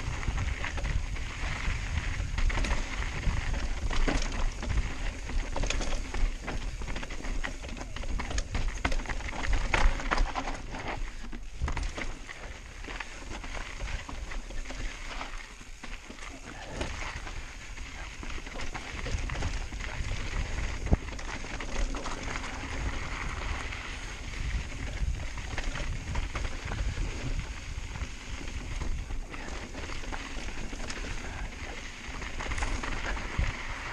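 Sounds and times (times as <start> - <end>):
bike rattling over bumps: 0.0 - 33.9
tyres crunching over gravel: 0.0 - 33.9
wind rumble on camera: 0.0 - 33.9.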